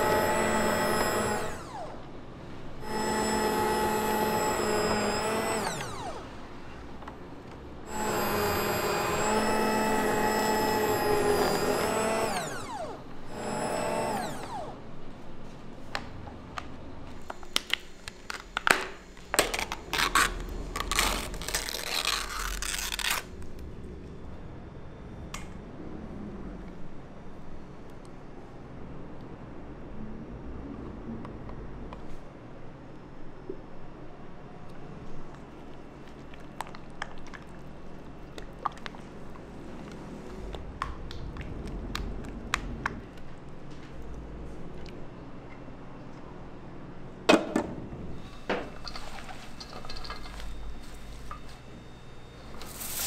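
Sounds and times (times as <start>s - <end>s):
electric kitchen motor running: 0.0s - 7.0s, 7.8s - 15.0s.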